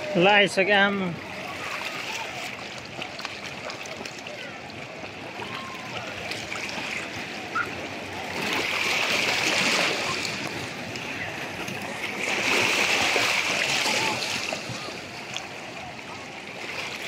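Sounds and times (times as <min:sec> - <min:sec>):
sea water sloshing and splashing: 0:00.0 - 0:17.0.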